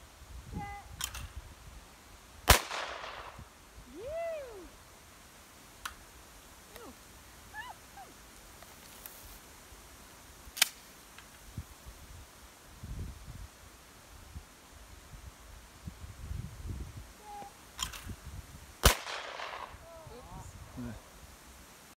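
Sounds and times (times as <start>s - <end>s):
sharp crack: 2.4s - 3.4s, 10.5s - 10.9s, 18.8s - 19.8s
shotgun shot with echo: 2.5s - 3.4s, 18.8s - 19.8s.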